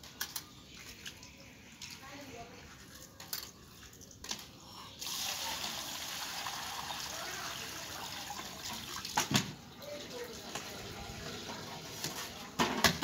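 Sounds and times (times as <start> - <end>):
water running and splashing: 5.0 - 12.5.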